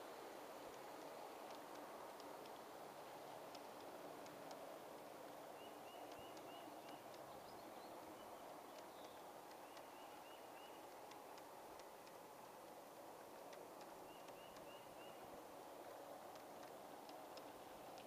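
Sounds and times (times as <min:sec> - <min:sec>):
bird chirping: 0:05.5 - 0:11.5, 0:13.8 - 0:15.4.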